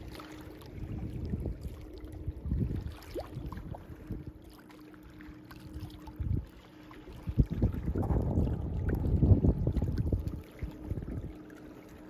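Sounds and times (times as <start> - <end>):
faint steady hum: 0.0 - 12.0
wind buffeting microphone: 0.7 - 4.3, 7.1 - 11.4.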